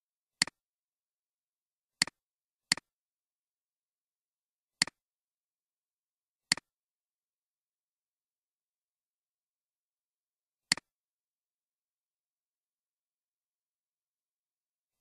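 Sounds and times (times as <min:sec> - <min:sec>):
computer mouse clicks: 0:02.0 - 0:02.9, 0:06.5 - 0:06.7, 0:10.7 - 0:10.9.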